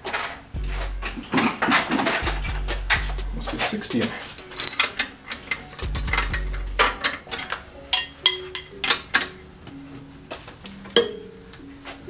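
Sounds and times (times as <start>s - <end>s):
spanner clinking on metal nuts: 1.0s - 9.4s.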